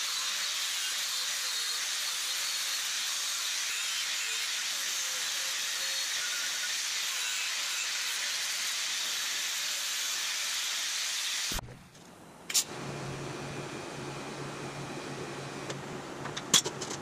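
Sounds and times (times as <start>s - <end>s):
angle grinder cutting steel: 0.0s - 11.6s.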